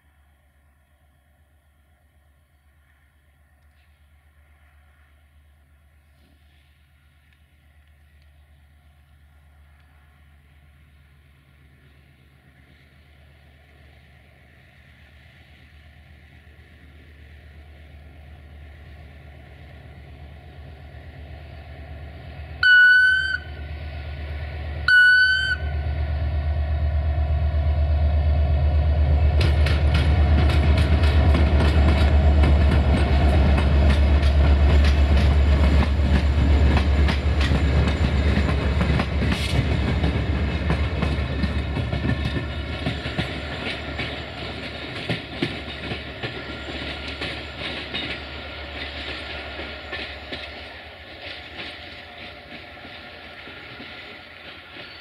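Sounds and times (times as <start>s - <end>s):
diesel locomotive engine: 0.0s - 55.0s
train horn blasts: 22.6s - 23.7s, 24.8s - 26.6s
train clattering over rail joints: 29.1s - 55.0s.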